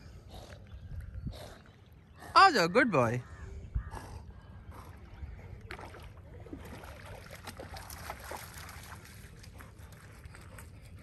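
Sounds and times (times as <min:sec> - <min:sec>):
wind rumble on microphone: 0:00.0 - 0:01.7
dog paddling splashes: 0:04.9 - 0:11.0.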